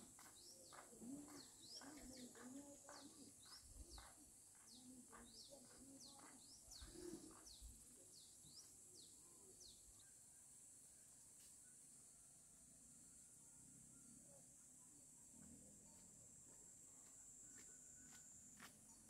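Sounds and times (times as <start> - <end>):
small birds chirping: 0.0 - 10.2.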